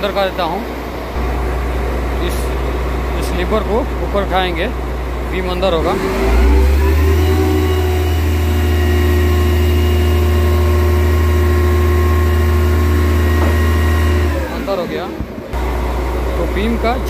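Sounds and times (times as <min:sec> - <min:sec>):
diesel engine under load: 0:00.0 - 0:17.0.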